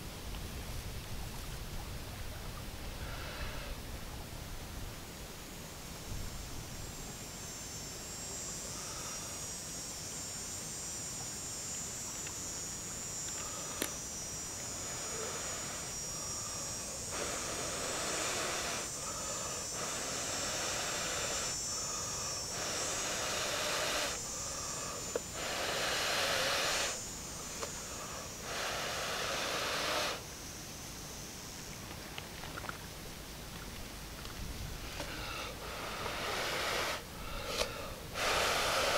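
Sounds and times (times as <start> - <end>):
person blowing hard breaths: 13.4 - 14.0, 14.8 - 30.2, 34.8 - 38.9.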